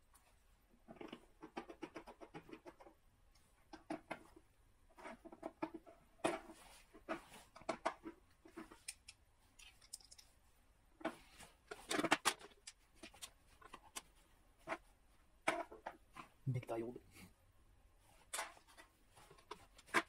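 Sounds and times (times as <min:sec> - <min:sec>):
small electronic parts clicking: 0:08.7 - 0:10.4.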